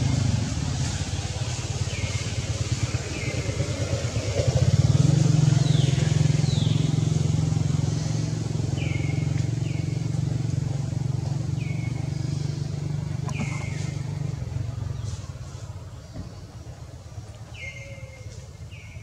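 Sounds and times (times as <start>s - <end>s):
motor engine humming: 0.0s - 17.6s
bird calling: 13.2s - 14.2s, 17.5s - 19.0s.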